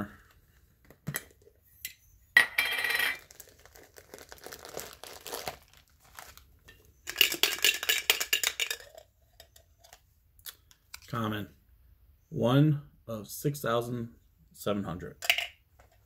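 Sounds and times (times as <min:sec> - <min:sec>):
packaging crinkling: 0:03.2 - 0:06.6.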